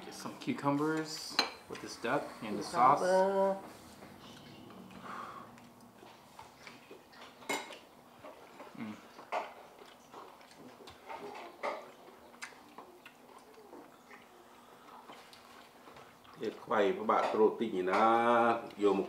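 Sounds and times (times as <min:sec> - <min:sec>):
plates and cutlery clinking: 0:07.4 - 0:08.4.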